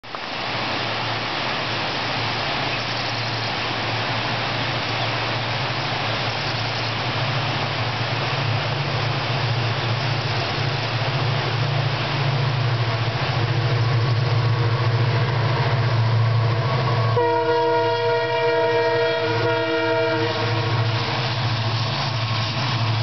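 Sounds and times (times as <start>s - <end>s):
diesel locomotive engine drone: 0.0s - 23.0s
waterfall rushing: 0.0s - 23.0s.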